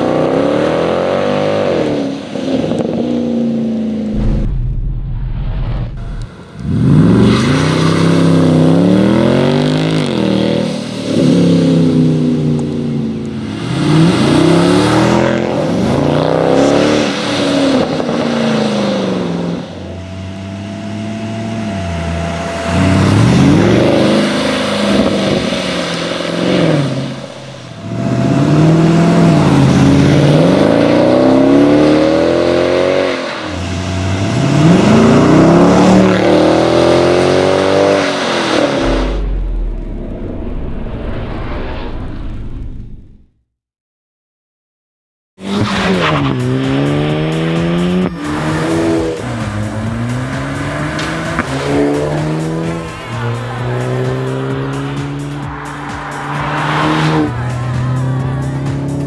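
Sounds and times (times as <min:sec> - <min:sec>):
car accelerating past: 0:45.4 - 0:59.0.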